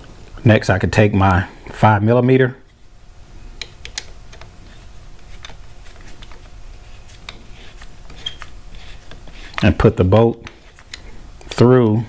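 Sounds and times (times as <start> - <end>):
hand tools clicking and tapping: 3.6 - 4.5, 9.1 - 11.6.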